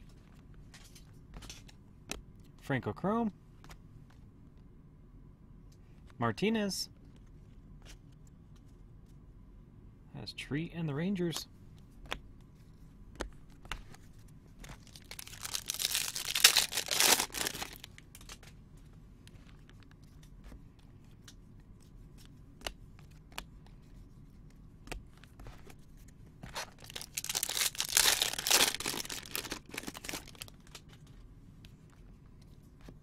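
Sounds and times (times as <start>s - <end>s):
card pack wrappers tearing and crinkling: 14.7s - 18.4s, 26.6s - 30.8s.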